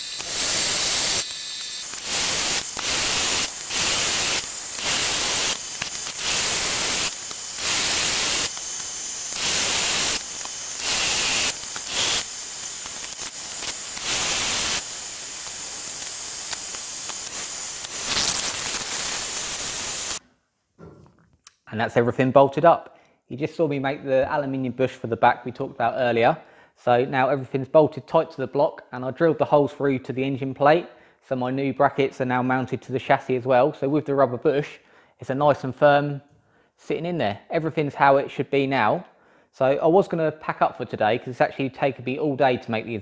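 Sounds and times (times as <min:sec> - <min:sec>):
metal lathe cutting hiss: 0:00.0 - 0:20.2.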